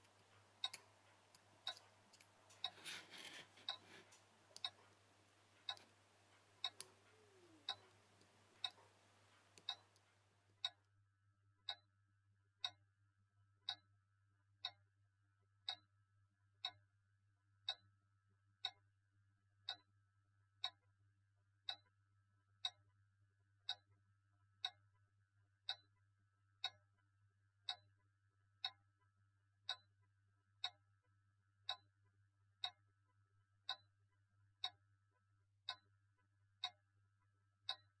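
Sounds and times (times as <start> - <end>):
faint low hum: 0.0 - 10.7
clock ticking: 0.0 - 10.8, 11.6 - 11.9, 13.6 - 13.9, 15.6 - 15.9, 17.6 - 17.8, 19.7 - 19.9, 36.6 - 36.8, 37.6 - 38.0.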